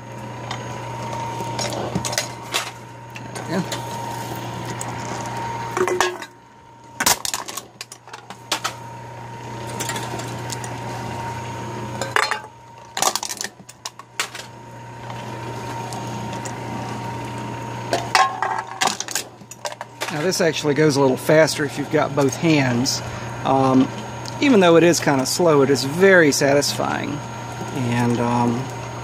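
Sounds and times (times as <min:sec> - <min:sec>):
electric motor humming: 0:00.0 - 0:29.0
can crushed with metallic clanks: 0:05.8 - 0:06.3, 0:12.0 - 0:14.5, 0:17.9 - 0:20.2.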